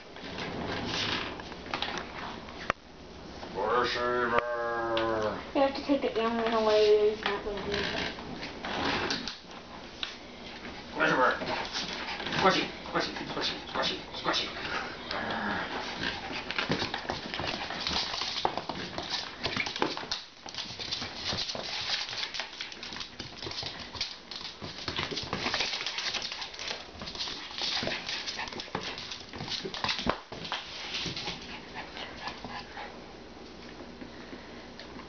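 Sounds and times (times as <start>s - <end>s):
dog making excited play noises: 10.6s - 15.1s, 15.7s - 33.1s.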